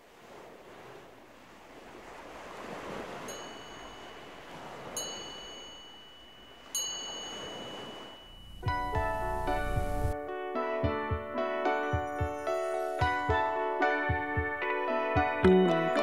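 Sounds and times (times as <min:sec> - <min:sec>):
rush of noise like surf: 0:00.0 - 0:10.2, 0:12.3 - 0:13.7
high chime strikes: 0:03.3 - 0:10.2.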